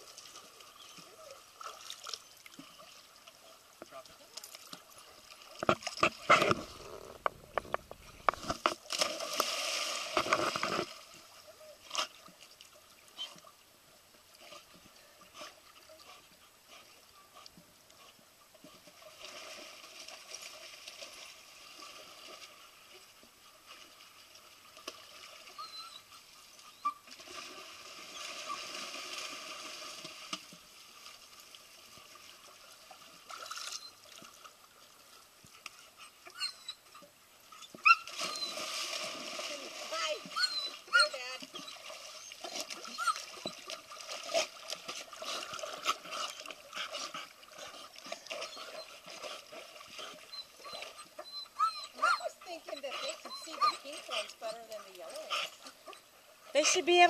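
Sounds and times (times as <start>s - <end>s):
water sloshing and lapping: 0.0s - 57.0s
dogs splashing in pool: 37.8s - 57.0s.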